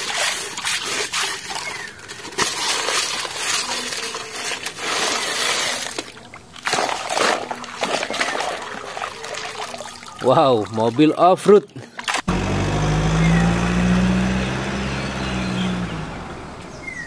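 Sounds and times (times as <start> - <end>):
hand scraping through wet gravel: 0.0 - 6.1.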